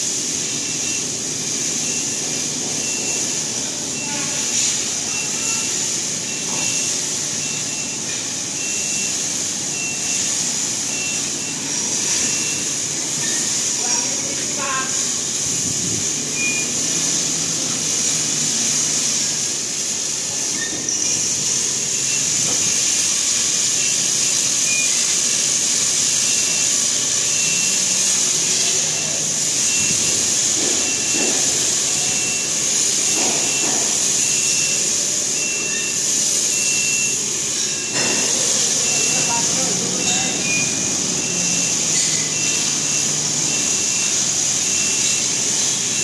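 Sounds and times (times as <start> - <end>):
loud steady high hiss: 0.0 - 46.0.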